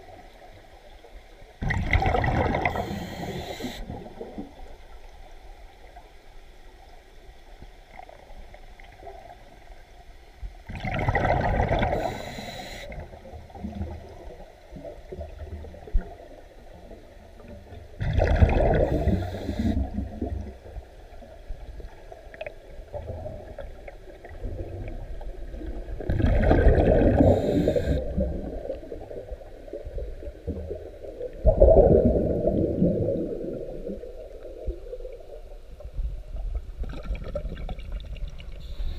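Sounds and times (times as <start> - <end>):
low murmuring water: 0.0 - 38.9
air bubbles gurgling underwater: 1.6 - 5.0, 10.7 - 12.3, 16.9 - 20.8, 21.8 - 38.7.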